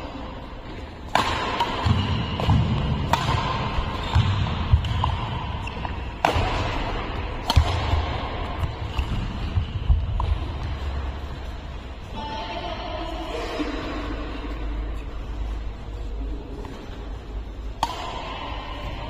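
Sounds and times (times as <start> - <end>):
rackets smacking shuttlecock: 0.7 - 11.1, 17.7 - 19.0.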